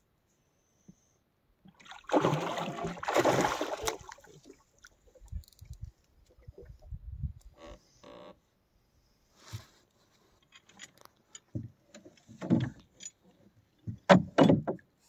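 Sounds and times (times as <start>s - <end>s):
fish splashing at surface: 1.9s - 4.4s.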